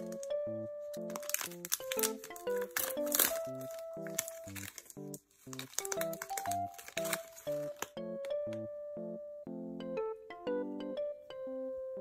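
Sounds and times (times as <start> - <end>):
plastic wrapper crinkling and tearing: 0.0 - 8.0
background music with steady beat: 0.0 - 12.0.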